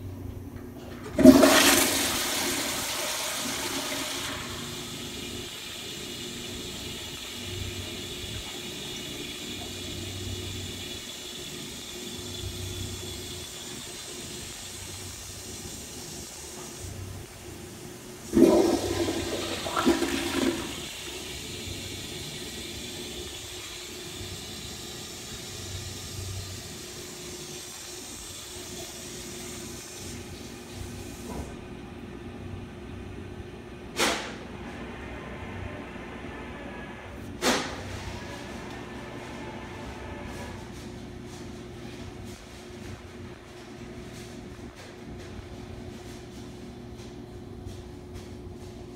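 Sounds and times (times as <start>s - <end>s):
toilet flushing whoosh: 0.8s - 31.6s, 33.9s - 45.3s
tank refilling hiss: 17.6s - 31.5s.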